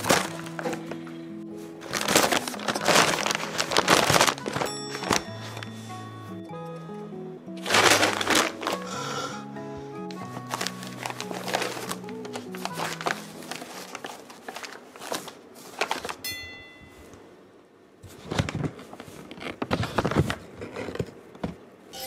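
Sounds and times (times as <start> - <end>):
paper bag rustling: 0.0 - 6.4, 7.6 - 9.4, 10.1 - 16.2, 18.0 - 21.2
ringing chime: 4.6 - 6.8, 16.2 - 17.3.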